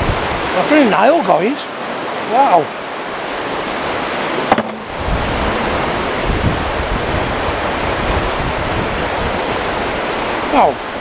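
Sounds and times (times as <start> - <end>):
wind rumbling on microphone: 0.0 - 0.8, 3.0 - 11.0
river water rushing: 0.0 - 11.0.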